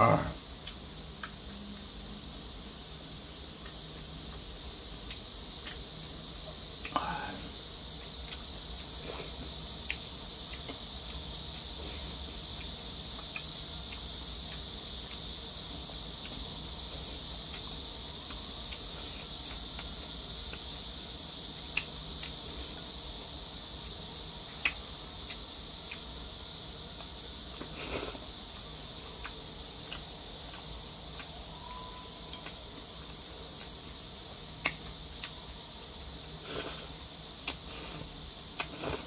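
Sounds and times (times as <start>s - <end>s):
high insect-like buzz: 0.0s - 39.0s
chopsticks clicking on a plate: 32.3s - 32.6s.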